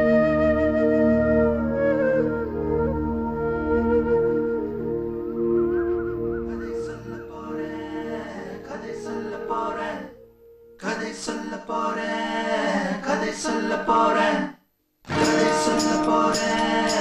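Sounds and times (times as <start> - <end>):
men singing a folk song: 10.8 - 14.5, 15.1 - 17.0
sustained music: 15.1 - 17.0.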